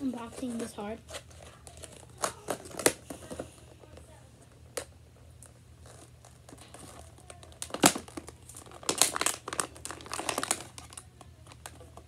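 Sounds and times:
plastic packaging crackling: 0.0s - 12.0s.

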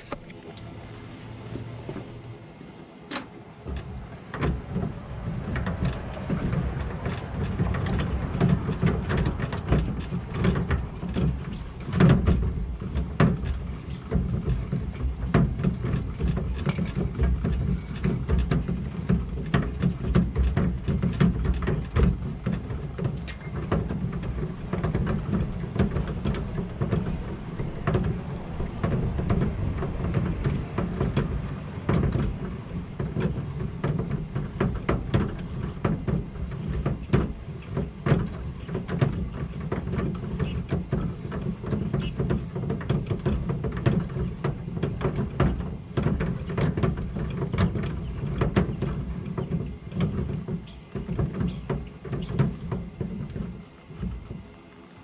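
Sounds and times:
winch clicking and rattling: 3.1s - 53.3s
low rumble: 23.6s - 35.4s.

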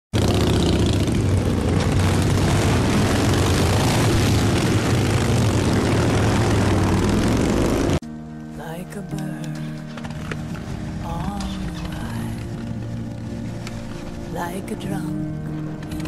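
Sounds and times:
motorcycle engines rumbling: 0.2s - 8.0s.

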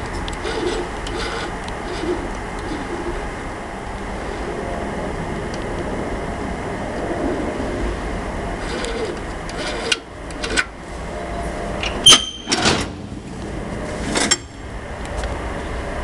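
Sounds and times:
ringing metallic latch clack: 11.8s - 12.9s.

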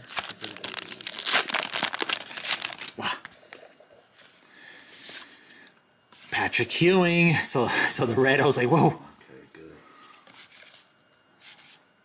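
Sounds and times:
wrapper tearing and crinkling: 0.0s - 3.0s.

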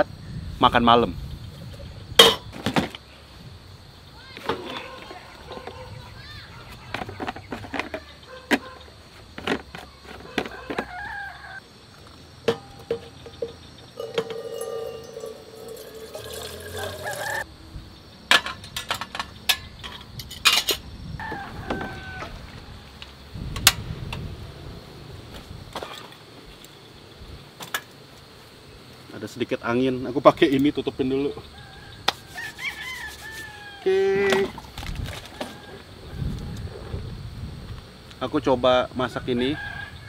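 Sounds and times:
water pouring into metal kettle: 14.0s - 17.4s.

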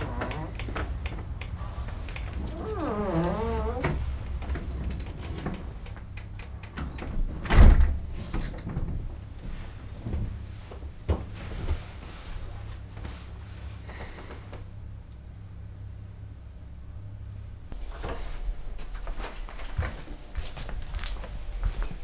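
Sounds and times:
door shutting with heavy thud: 6.8s - 9.1s.

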